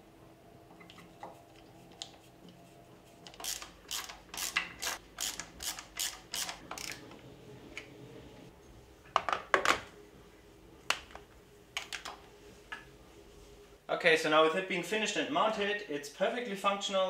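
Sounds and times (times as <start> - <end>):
ratcheting screwdriver clicking: 3.3 - 7.0.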